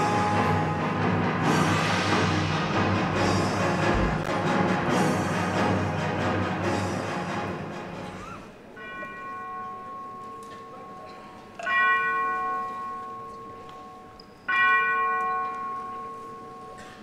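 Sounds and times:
bell ringing: 0:00.0 - 0:01.7, 0:08.8 - 0:17.0
music: 0:00.0 - 0:11.2.

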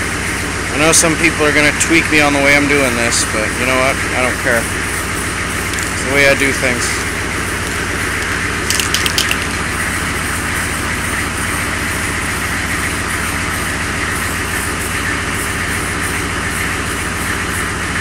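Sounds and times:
diesel engine idling: 0:00.0 - 0:18.0
sharp clicks: 0:05.7 - 0:06.0, 0:07.6 - 0:09.6.

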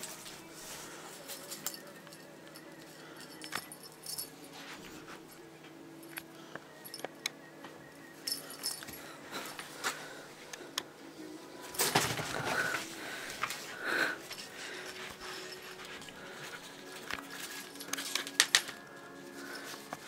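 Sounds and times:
small jingles: 0:01.2 - 0:04.6, 0:08.2 - 0:09.7, 0:14.7 - 0:20.0
rustling scuffle: 0:11.6 - 0:13.7.

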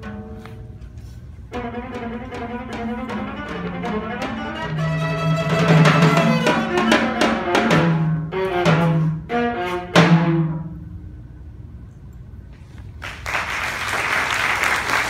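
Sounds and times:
viola: 0:00.0 - 0:10.5
drums: 0:00.0 - 0:10.8
audience applause: 0:13.0 - 0:15.0.

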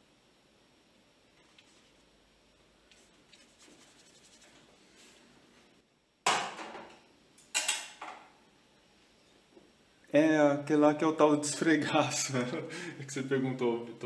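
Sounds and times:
paintbrush scratching on paper: 0:02.9 - 0:05.2.

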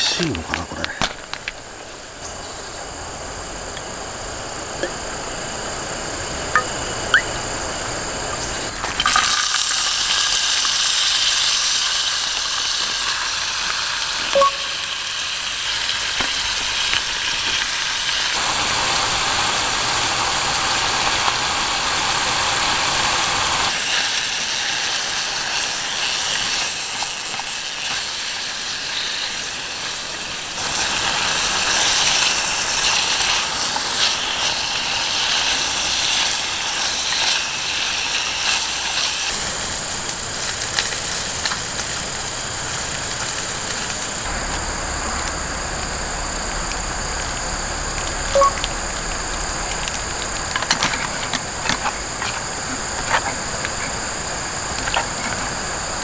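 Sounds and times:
vegetables sizzling in oil: 0:08.5 - 0:44.3.

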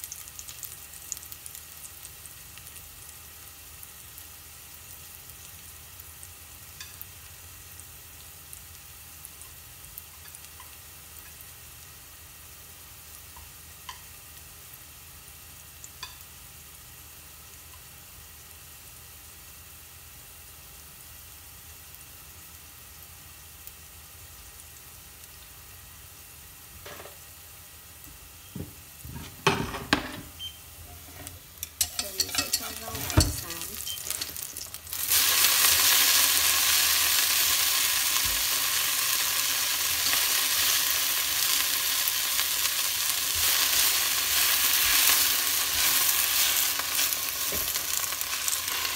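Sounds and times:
garlic sizzling in oil: 0:00.0 - 0:48.9
chopsticks scraping a pot: 0:30.9 - 0:34.7.

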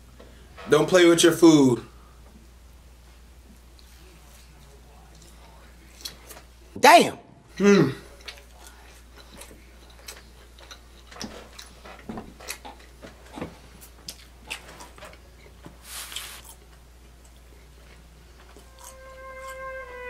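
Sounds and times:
person chewing food: 0:08.1 - 0:19.6.

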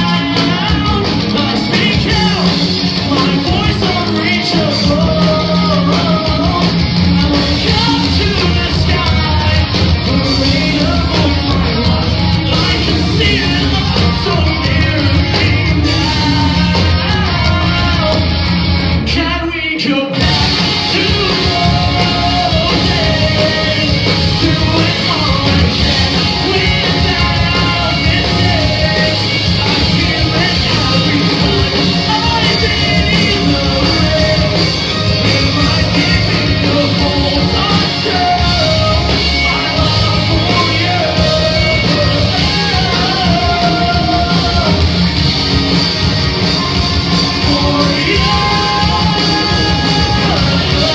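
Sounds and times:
live rock band playing: 0:00.0 - 0:50.9
person singing: 0:00.0 - 0:50.9.

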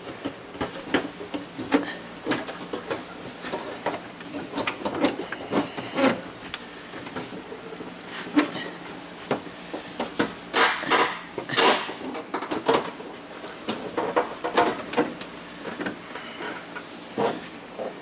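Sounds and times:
plastic bumper knocking and scraping: 0:09.2 - 0:18.0.

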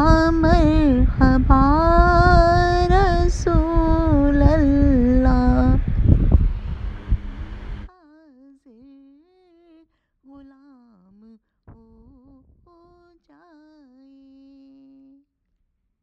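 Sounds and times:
woman humming faintly: 0:00.0 - 0:06.0
loud rushing noise: 0:00.6 - 0:07.9.

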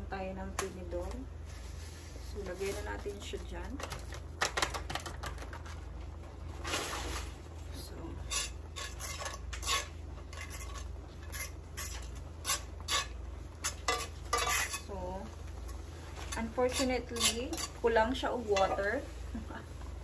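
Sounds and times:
fork scraping and clinking in skillet: 0:08.2 - 0:14.9, 0:15.6 - 0:17.9.

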